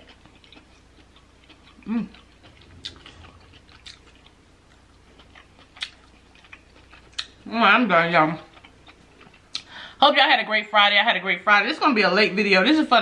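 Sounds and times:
wet eating clicks and smacks: 5.2 - 7.4.

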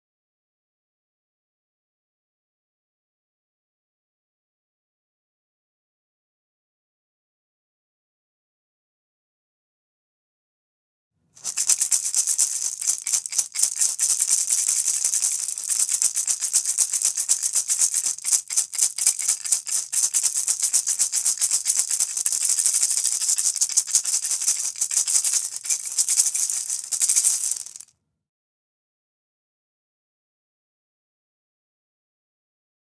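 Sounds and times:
maracas shaken rapidly: 11.4 - 27.9.

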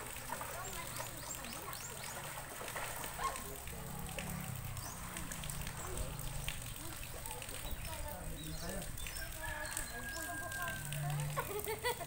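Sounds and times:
faint voices: 0.0 - 12.0
swimmers splashing in water: 0.0 - 12.0.

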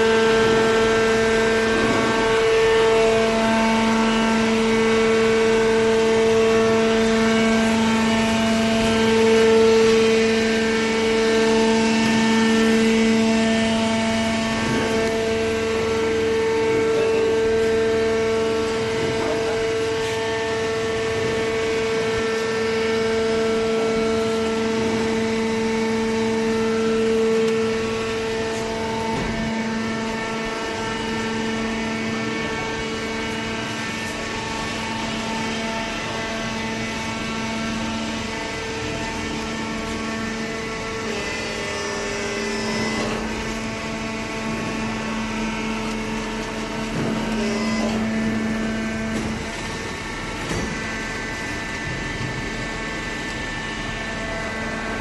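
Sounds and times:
hydraulic pump droning whine: 0.0 - 55.0.

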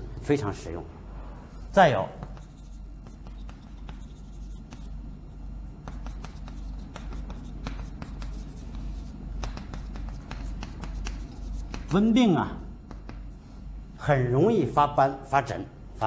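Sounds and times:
low steady hum: 0.0 - 16.0
chalk tapping and scratching: 1.9 - 5.0, 5.8 - 12.2, 12.8 - 13.4.

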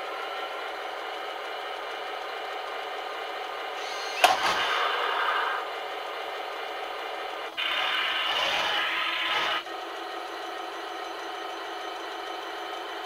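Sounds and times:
mechanical running sound: 3.4 - 13.0.

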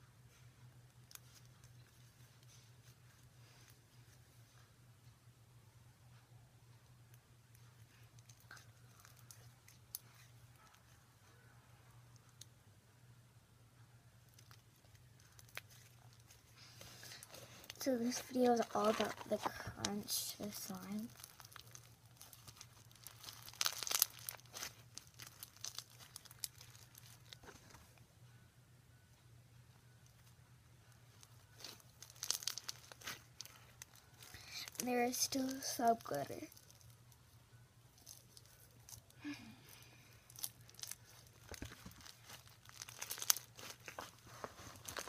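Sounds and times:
slime with foam beads crackling: 7.8 - 10.8, 14.3 - 27.6, 30.9 - 37.1, 38.0 - 45.0.

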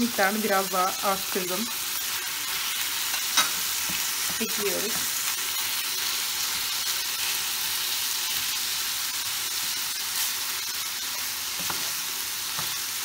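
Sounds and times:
meat sizzling in a frying pan: 0.0 - 13.0
wooden spoon scraping a pan: 11.1 - 12.8.

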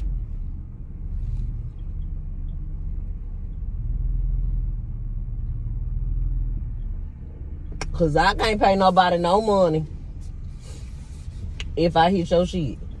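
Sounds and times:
car engine low rumble: 0.0 - 13.0.

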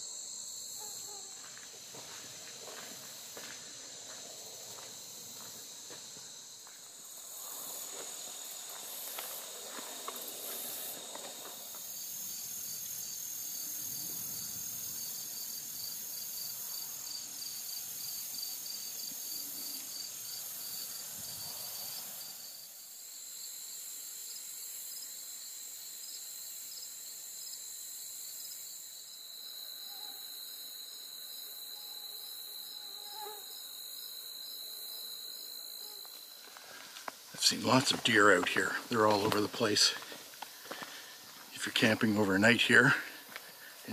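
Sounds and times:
insects trilling: 0.0 - 43.9
footsteps crunching: 1.3 - 12.0, 36.0 - 43.9.

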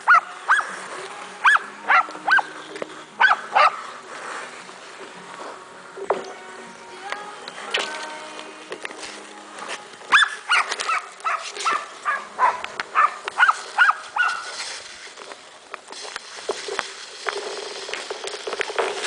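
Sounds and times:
dog yelping barks: 0.0 - 0.7, 1.4 - 2.4, 3.2 - 3.8, 10.1 - 14.5.

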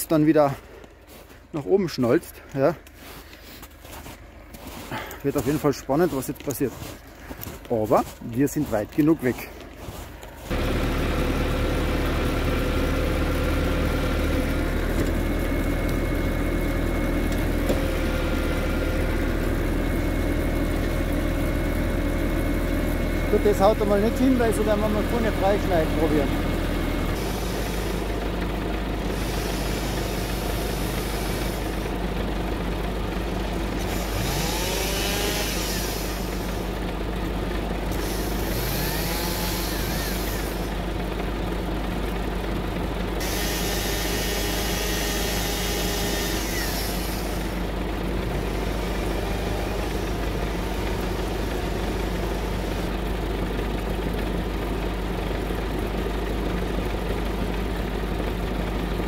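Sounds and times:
tractor diesel engine idling: 0.0 - 59.0
chainsaw revving: 23.2 - 32.2, 33.3 - 37.0, 37.8 - 40.9, 43.2 - 53.2.

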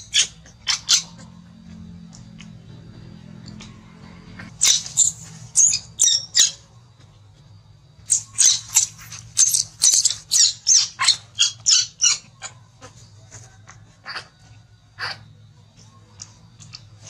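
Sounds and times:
baby monkey screeching: 0.0 - 1.4, 4.5 - 6.8, 8.0 - 15.3.

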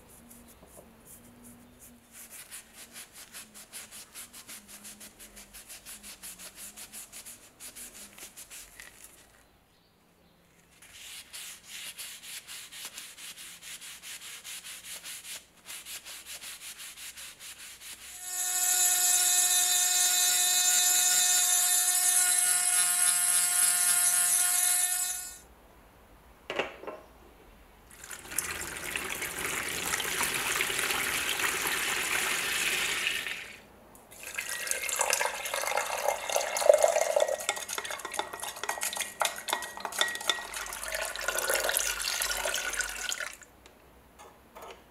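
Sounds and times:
rotary tool grinding steel: 18.0 - 25.4.

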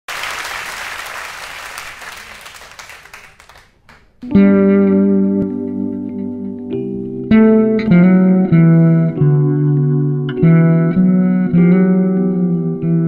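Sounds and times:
audience applause: 0.1 - 4.2
electric guitar chord: 4.2 - 13.0.

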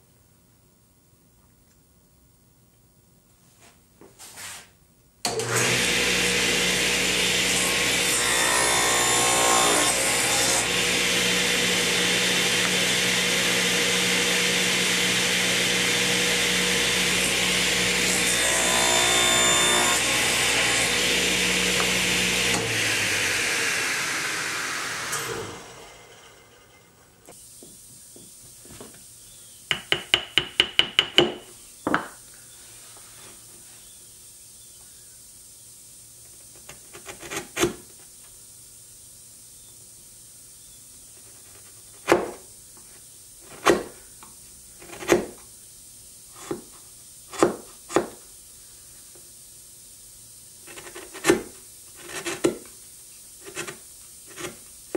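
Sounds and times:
table saw cutting wood: 5.3 - 27.3
chisel tapping wood: 29.7 - 32.1.

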